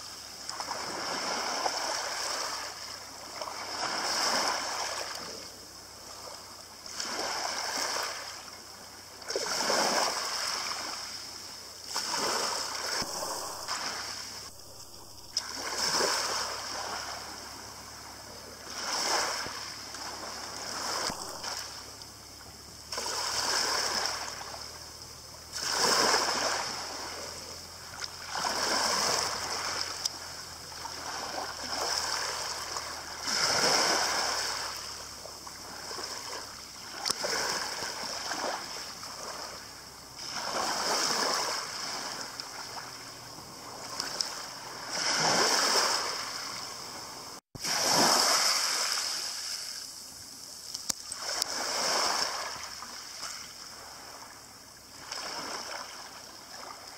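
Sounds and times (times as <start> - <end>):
waves washing over pebbles: 0.0 - 56.9.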